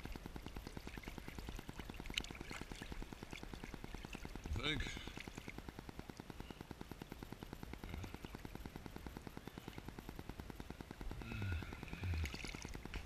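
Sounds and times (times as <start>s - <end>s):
rapid even clicking: 0.0s - 13.0s.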